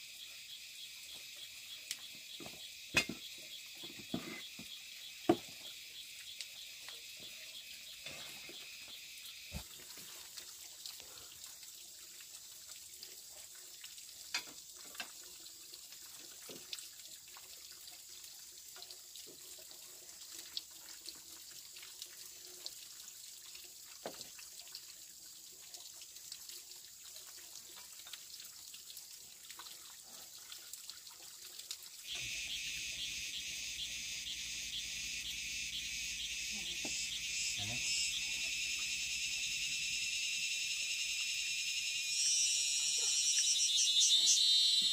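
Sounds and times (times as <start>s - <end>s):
crickets chirping: 0.0s - 10.0s, 32.0s - 44.9s
water trickling: 0.0s - 44.9s.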